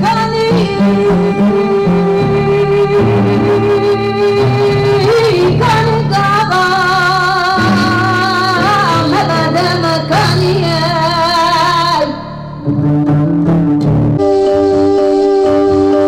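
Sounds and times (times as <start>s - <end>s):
woman singing: 0.0s - 12.4s
upright double bass: 0.0s - 16.0s.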